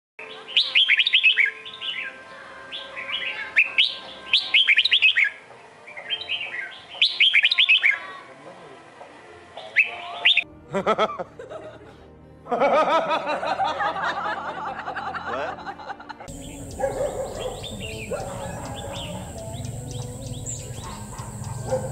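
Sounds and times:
bird song whistled phrases: 0.2s - 5.4s, 6.0s - 8.1s, 9.6s - 10.5s, 16.3s - 21.9s.

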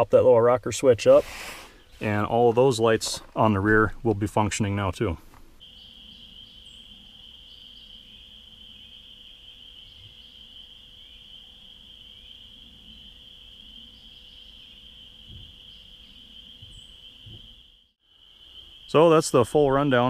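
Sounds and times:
faint bird chirps: 5.6s - 20.0s.

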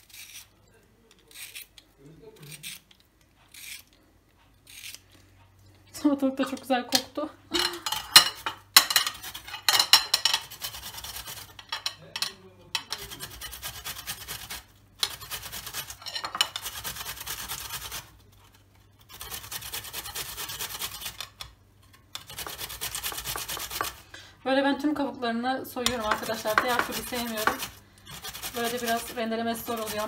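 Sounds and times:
cucumber rasping on a metal grater: 0.0s - 0.5s, 1.3s - 1.8s, 2.4s - 4.0s, 4.6s - 5.0s, 9.2s - 9.6s, 10.4s - 11.6s, 12.9s - 21.5s, 22.1s - 24.0s, 25.8s - 30.0s.

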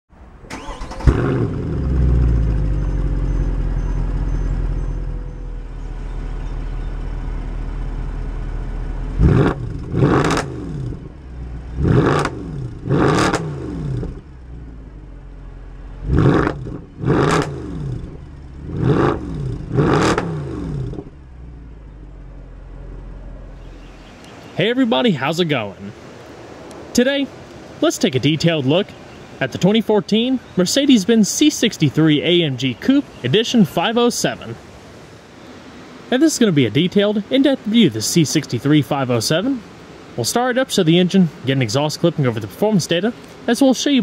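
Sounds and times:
car engine starting: 0.3s - 24.3s
car engine idling: 0.4s - 24.3s
car engine revving: 0.5s - 24.1s.

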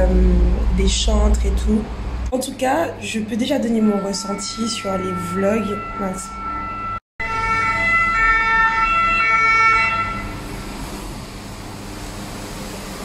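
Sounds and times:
emergency vehicle siren: 3.6s - 10.6s.

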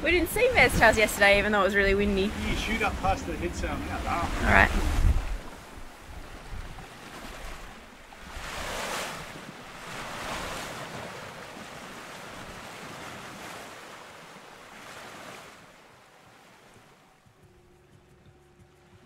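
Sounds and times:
wind buffeting microphone: 0.0s - 13.6s
water rushing past hull: 0.0s - 17.8s.

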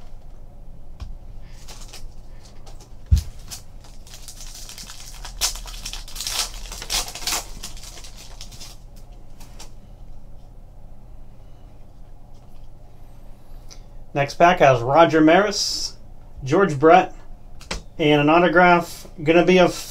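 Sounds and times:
foil wrapper crinkling and tearing: 1.5s - 9.7s.

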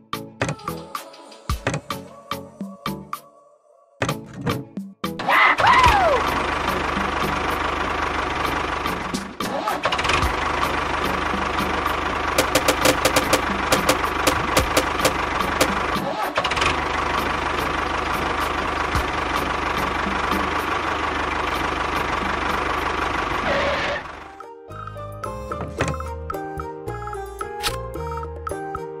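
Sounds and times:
motor running: 10.2s - 19.2s
sharp clicks: 12.4s - 15.8s.

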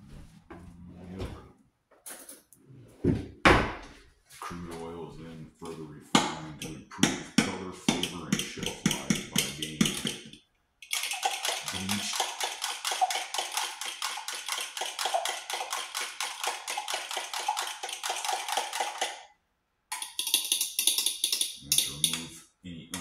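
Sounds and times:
fork clicking against plastic cup: 19.9s - 22.2s.

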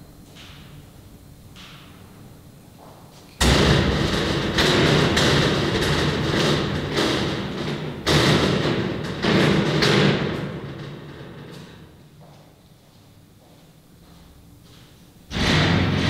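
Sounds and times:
heavy booming hits: 3.4s - 11.3s, 15.3s - 16.0s.

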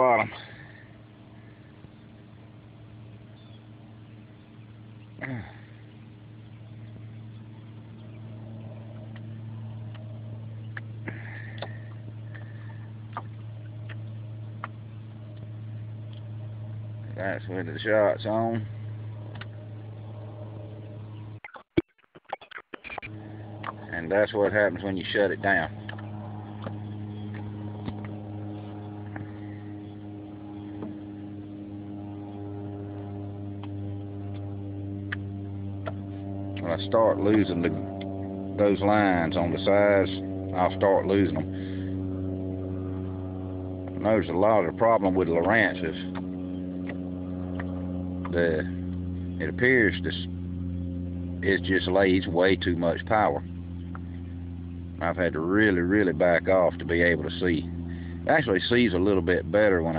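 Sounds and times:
low motor hum: 0.0s - 59.9s.

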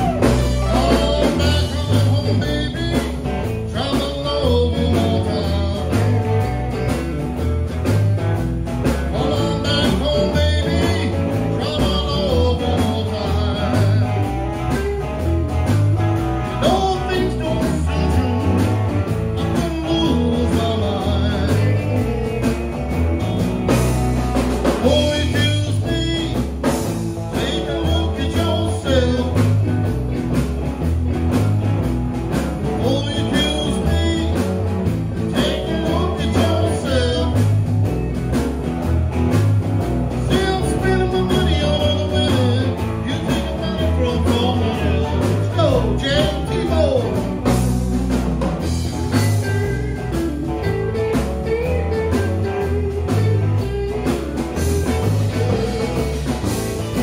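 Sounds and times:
man singing into a microphone: 0.0s - 6.4s, 9.1s - 14.4s, 16.5s - 18.3s, 19.4s - 22.3s, 24.8s - 26.6s, 27.2s - 29.6s, 32.7s - 34.6s, 35.2s - 37.6s, 40.1s - 47.3s
blues-rock band playing: 0.0s - 57.0s.

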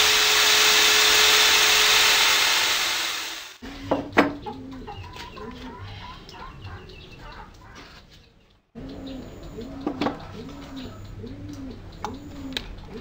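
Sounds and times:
pigeons cooing: 3.6s - 8.2s, 8.8s - 13.0s
small birds chirping: 4.4s - 13.0s.

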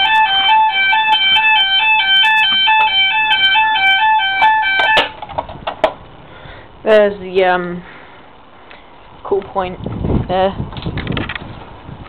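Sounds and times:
two-tone fire alarm: 0.0s - 5.1s.

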